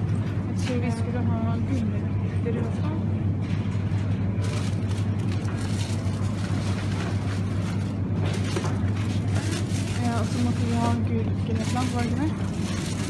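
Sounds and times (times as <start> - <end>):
shopping cart wheels rumbling: 2.6 - 13.0.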